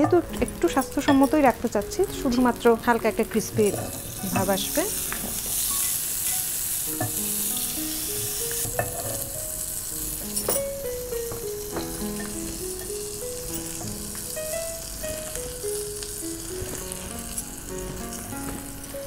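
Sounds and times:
butter sizzling in a frying pan: 0.0s - 19.0s
slow melodic background music: 0.0s - 19.0s.

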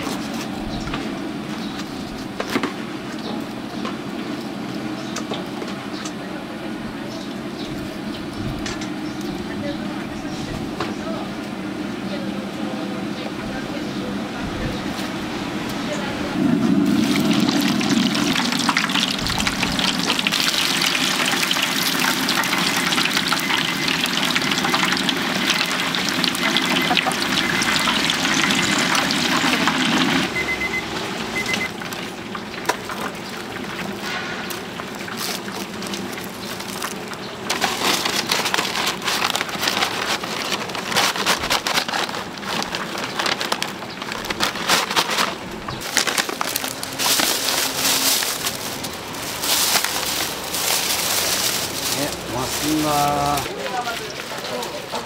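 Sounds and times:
chicken sizzling in hot oil: 16.6s - 40.8s.

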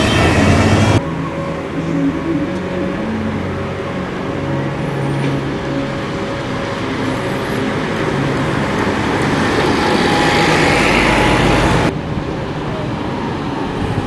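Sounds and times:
diesel bus engine: 0.0s - 14.0s
road noise: 0.0s - 14.0s.

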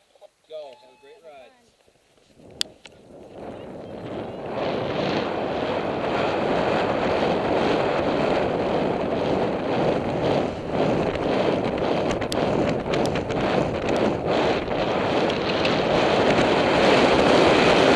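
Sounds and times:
wind on microphone: 2.2s - 17.9s
sharp clicks: 15.2s - 16.4s.

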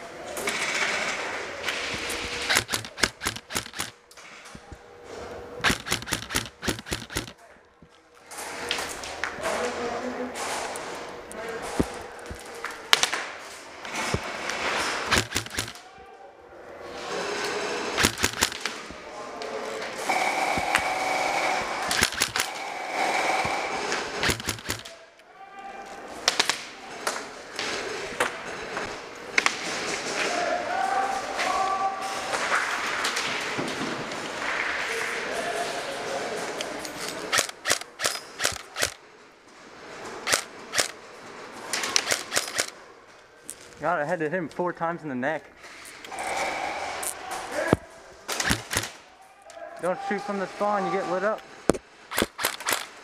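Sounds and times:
airsoft gun bursts: 2.1s - 4.0s, 5.6s - 7.4s, 15.0s - 15.8s, 17.9s - 18.8s, 20.0s - 24.9s, 37.3s - 39.0s, 40.2s - 41.0s, 41.9s - 42.8s, 48.3s - 49.0s, 52.1s - 53.0s.

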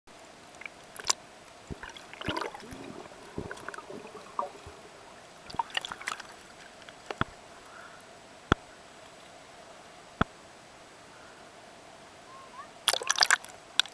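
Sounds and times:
underwater bubbling: 0.1s - 7.9s, 12.9s - 13.9s
water gurgles: 0.1s - 8.7s, 12.8s - 13.9s.

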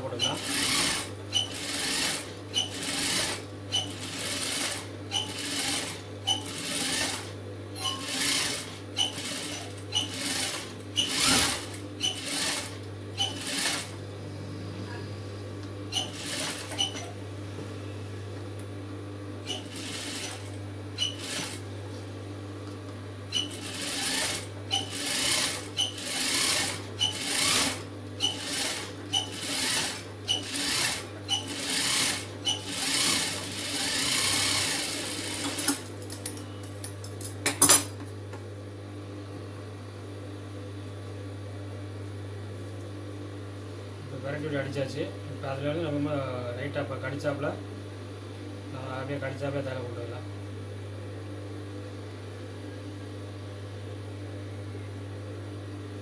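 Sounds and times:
steady low hum: 0.0s - 31.2s
sewing machine stitching: 0.1s - 14.0s, 15.9s - 17.1s, 19.4s - 21.6s, 23.3s - 35.9s.

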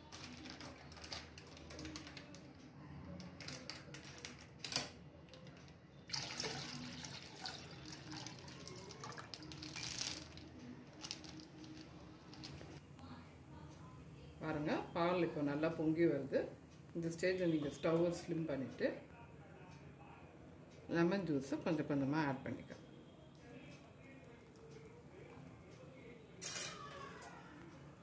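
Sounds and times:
milk pouring into a steel pot: 6.1s - 10.4s
plastic pouch rustling: 8.0s - 12.8s.

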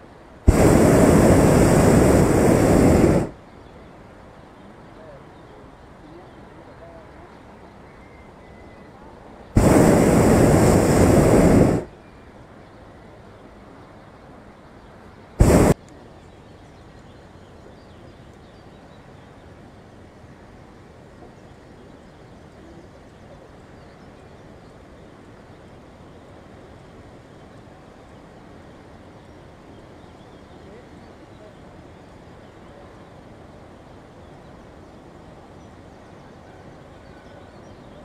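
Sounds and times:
faint steady background noise: 0.0s - 38.0s
propane burner blasts: 0.4s - 3.4s, 9.6s - 11.9s, 15.4s - 15.8s.

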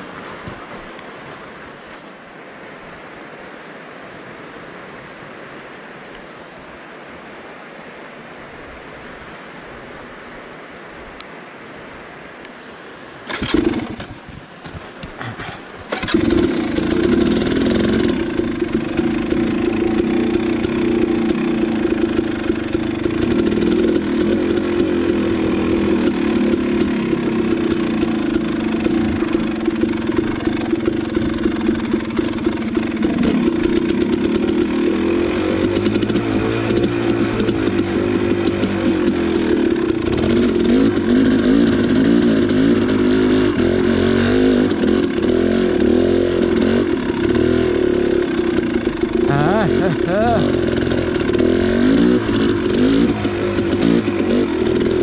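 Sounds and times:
dirt bike engine starting and running: 0.0s - 2.2s, 13.2s - 55.0s.

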